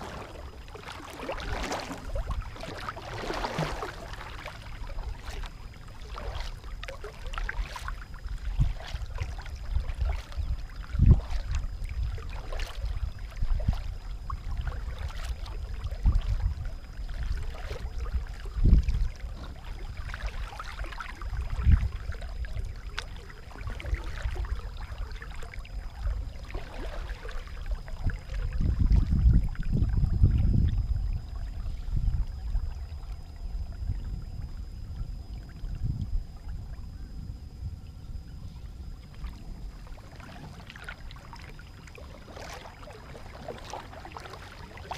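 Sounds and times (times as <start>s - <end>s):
paddle splashing into water: 0.0s - 16.5s, 17.1s - 29.3s, 39.1s - 44.9s.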